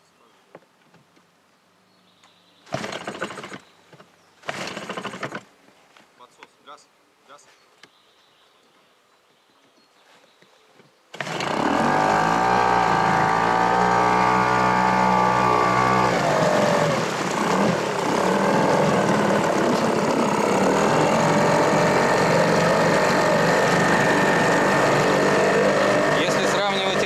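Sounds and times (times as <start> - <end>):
outboard motor running: 2.7 - 3.7, 4.4 - 5.4, 11.1 - 27.0
water rushing and spraying: 11.2 - 27.0.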